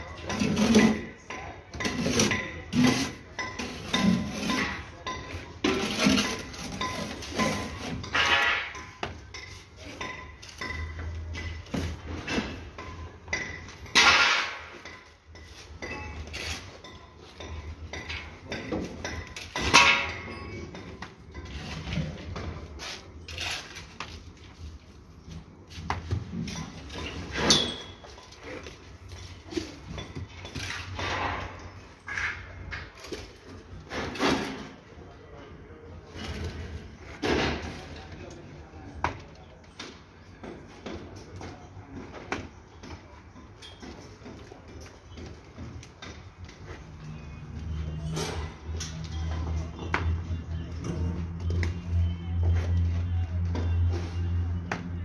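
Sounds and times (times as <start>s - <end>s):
bricks and trowel knocking and scraping: 0.0s - 24.5s.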